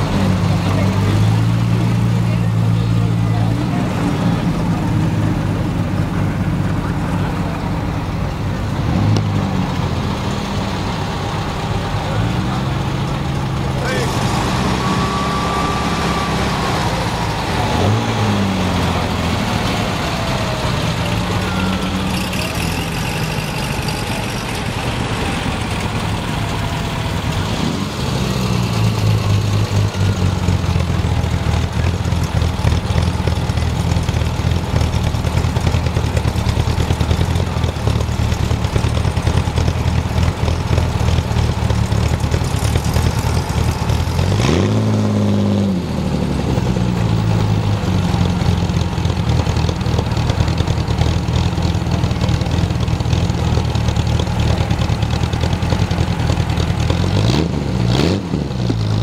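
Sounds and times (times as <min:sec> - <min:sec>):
car engine idling and revving: 0:00.0 - 0:59.0.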